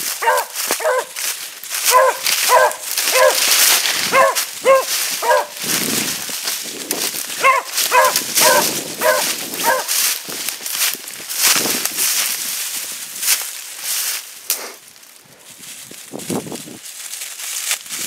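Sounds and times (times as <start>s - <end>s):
hound barking: 0.1s - 1.2s, 1.8s - 5.6s, 7.4s - 10.0s.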